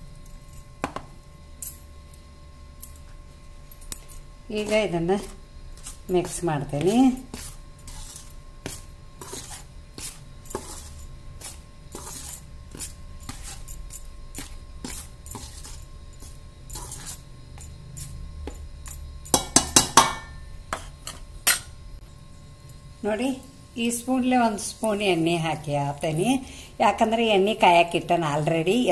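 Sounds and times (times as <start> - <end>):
spoon scraping metal bowl: 4.0 - 19.8.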